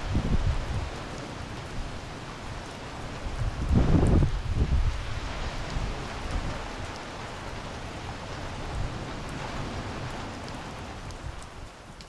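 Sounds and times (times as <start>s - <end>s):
rain on foliage and path: 0.0s - 12.0s.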